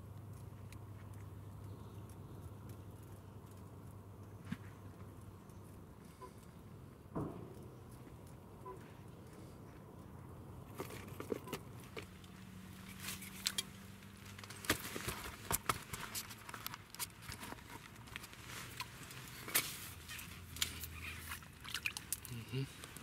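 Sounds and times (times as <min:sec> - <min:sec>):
fishing tackle clicks and rustles: 0:10.6 - 0:23.0.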